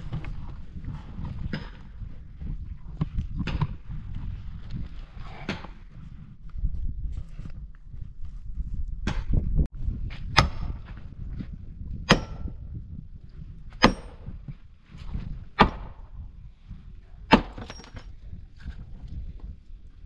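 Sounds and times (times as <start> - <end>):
axe chopping wood: 12.0 - 12.5, 13.7 - 14.3, 15.6 - 16.0, 17.3 - 17.9.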